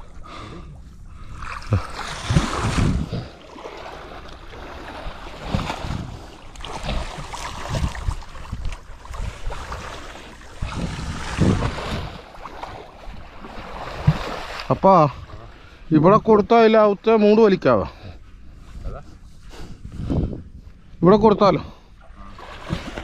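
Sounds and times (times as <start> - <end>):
water splashing around a boat: 0.0 - 23.0
wind rumbling on microphone: 1.1 - 3.4, 4.9 - 14.3, 18.5 - 21.1.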